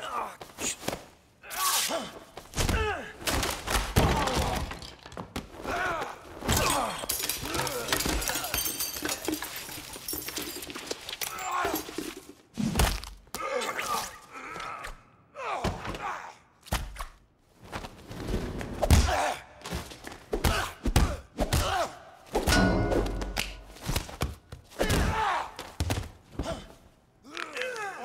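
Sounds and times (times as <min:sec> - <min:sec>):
punch impacts and body blows: 0:20.4 - 0:26.7.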